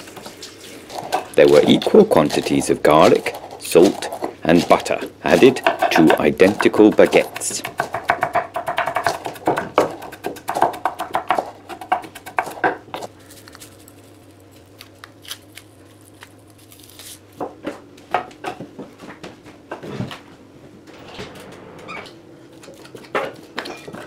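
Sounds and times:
knife chopping on wooden board: 1.0s - 13.1s.

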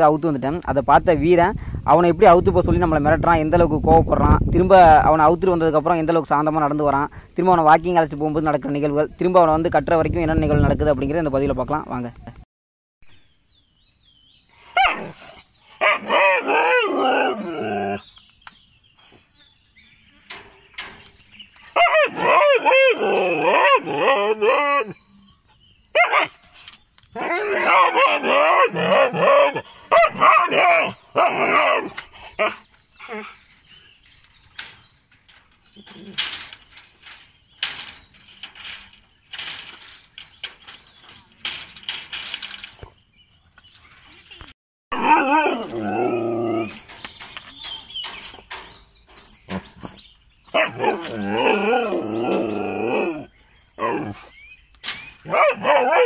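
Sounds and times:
dog barking and whining: 14.8s - 15.2s, 15.8s - 18.0s, 21.8s - 25.0s, 25.9s - 26.4s, 27.2s - 33.4s, 44.9s - 46.8s, 50.5s - 54.3s, 55.2s - 56.0s
wire mesh fence rattling: 20.3s - 22.4s, 33.6s - 43.0s, 45.2s - 53.2s.

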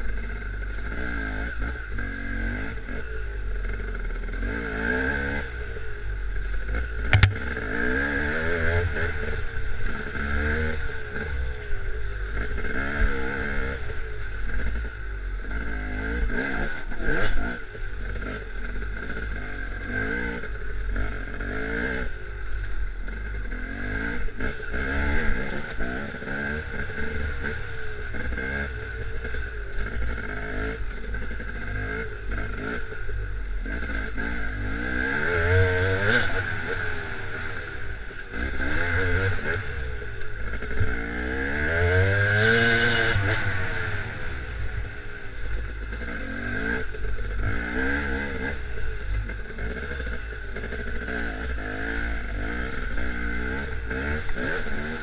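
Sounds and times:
dirt bike engine revving: 6.7s - 11.5s, 15.4s - 22.2s, 23.1s - 55.0s
bike clatter: 7.1s - 7.5s.

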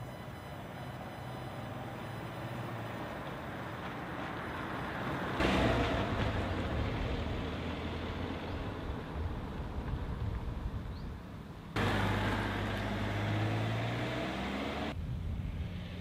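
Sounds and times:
car engine running: 11.8s - 14.9s.

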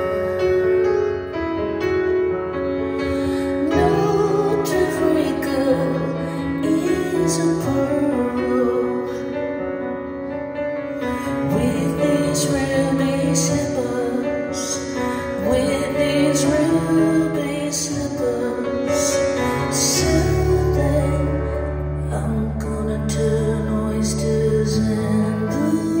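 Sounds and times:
slow grand piano song: 0.0s - 26.0s
woman singing: 3.3s - 9.6s, 11.2s - 26.0s.

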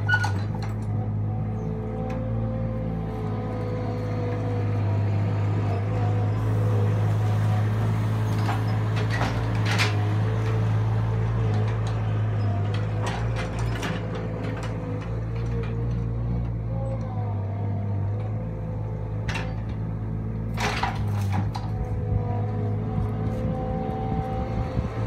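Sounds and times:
loader engine running: 0.0s - 25.0s.

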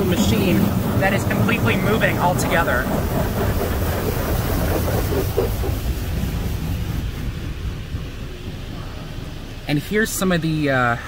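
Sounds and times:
water spray hitting car: 0.0s - 10.0s
steady low rumble: 0.0s - 11.0s.

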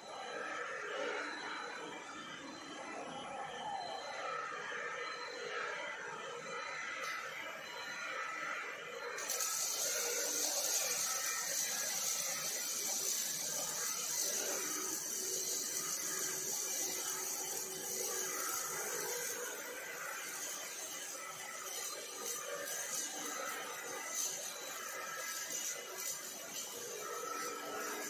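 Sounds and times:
welding arc crackling hiss: 8.6s - 28.0s.

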